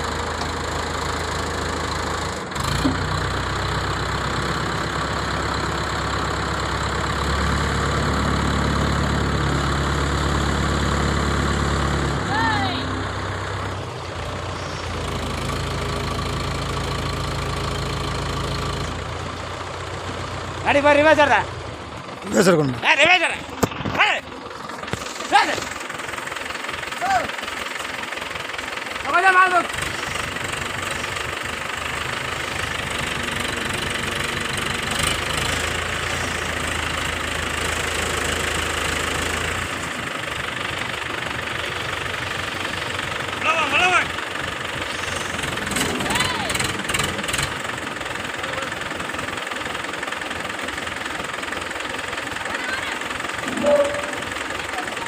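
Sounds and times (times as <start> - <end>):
diesel engine running: 0.0 - 55.0
deep hum: 53.4 - 54.6.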